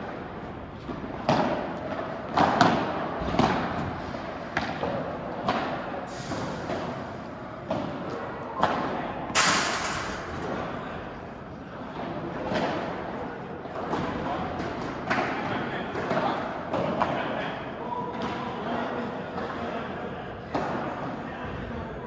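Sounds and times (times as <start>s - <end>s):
rackets hitting ball: 0.9s - 7.0s, 7.7s - 11.2s
noisy crash: 9.4s - 11.0s.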